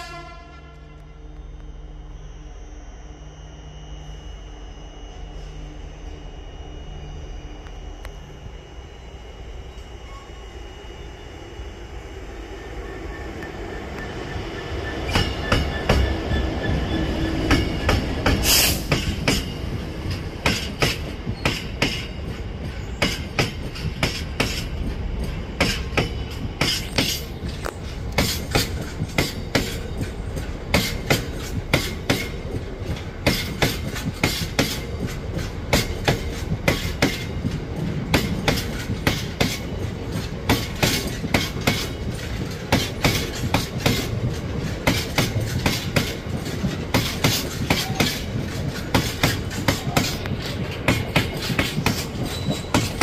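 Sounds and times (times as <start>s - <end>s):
diesel locomotive engine running: 0.0s - 53.0s
train wheels clickety-clack: 13.2s - 53.0s.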